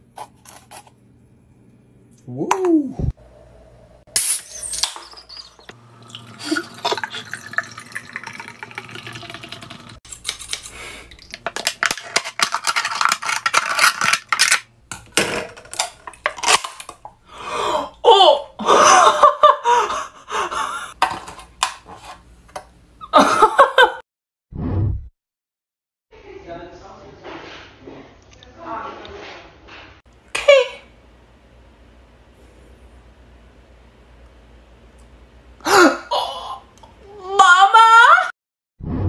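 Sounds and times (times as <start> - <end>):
person exclaiming: 2.3 - 3.1, 18.0 - 18.6, 35.7 - 38.3
beer fizzing and dripping: 4.5 - 10.0
scissors cutting metal can: 10.1 - 10.7.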